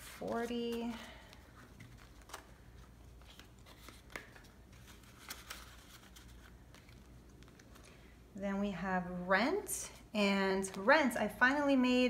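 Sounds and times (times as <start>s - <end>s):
banknotes rustling and clicking: 0.0s - 8.1s.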